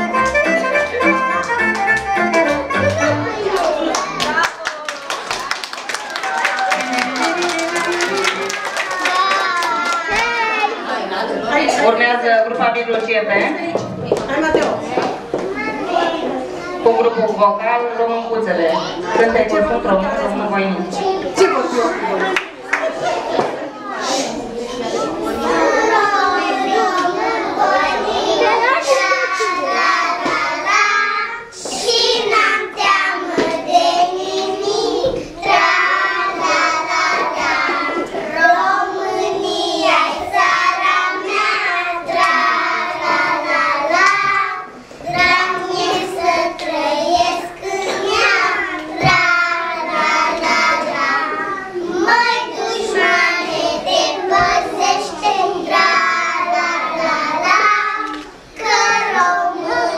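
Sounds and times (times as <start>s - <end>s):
children singing: 6.2s - 11.3s, 21.0s - 59.9s.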